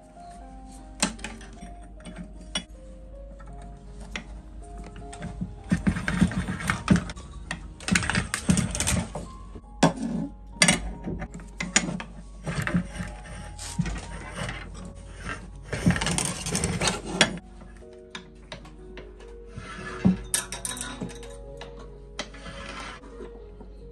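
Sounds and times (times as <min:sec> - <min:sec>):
wire scraping through drawplate: 0:04.9 - 0:17.4, 0:22.2 - 0:23.3.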